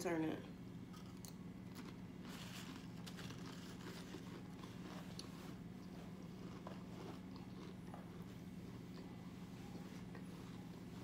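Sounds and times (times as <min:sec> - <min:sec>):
steady low hum: 0:00.0 - 0:11.0
potato chip crunching and chewing: 0:00.9 - 0:09.2.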